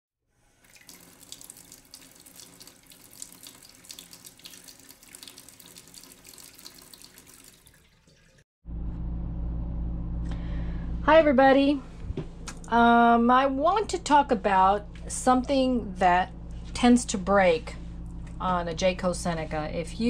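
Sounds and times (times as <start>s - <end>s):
steady low hum: 8.7s - 20.0s.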